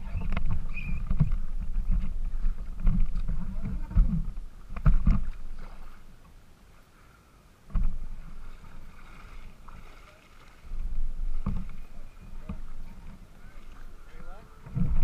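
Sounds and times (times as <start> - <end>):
kayak thumping: 0.0 - 6.4, 7.7 - 15.0
water sloshing and splashing: 0.0 - 6.4, 7.7 - 15.0.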